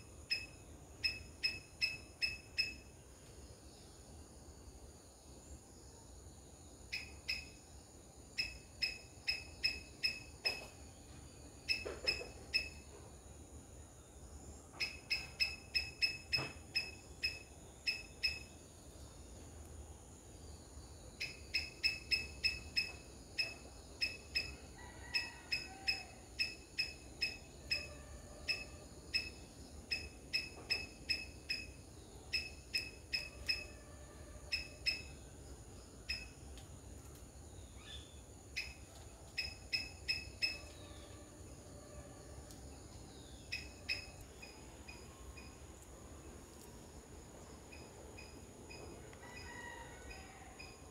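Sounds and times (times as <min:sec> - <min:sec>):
faint high-pitched hum: 0:00.0 - 0:50.9
short sharp chirping calls: 0:14.8 - 0:18.5.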